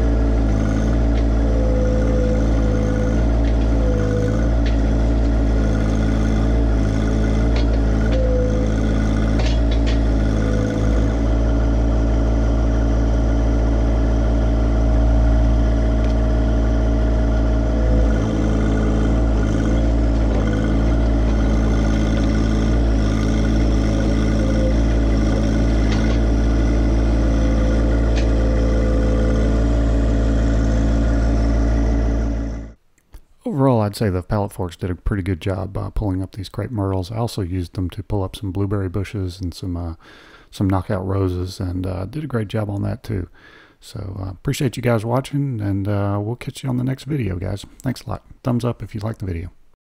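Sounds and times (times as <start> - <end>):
tractor diesel engine running: 0.0 - 32.9.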